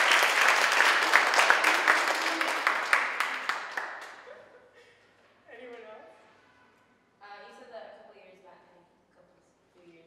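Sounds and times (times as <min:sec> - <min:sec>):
small audience applauding: 0:00.0 - 0:04.5.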